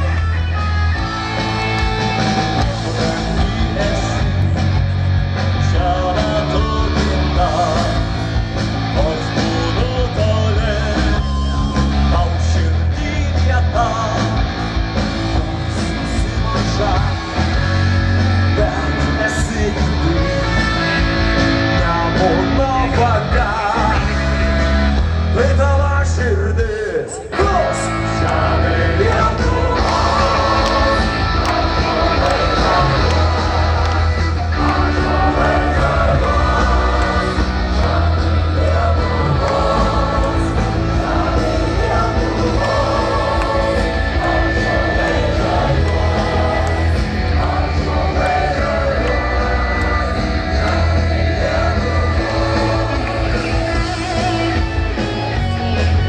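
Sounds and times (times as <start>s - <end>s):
live rock band with folk ensemble: 0.0s - 56.0s
voices singing together: 27.8s - 55.3s.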